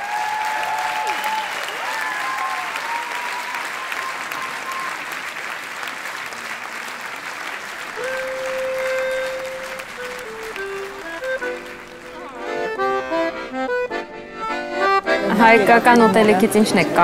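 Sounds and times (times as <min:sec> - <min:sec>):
audience applauding and cheering: 0:00.0 - 0:13.5
steady musical notes: 0:07.7 - 0:17.0.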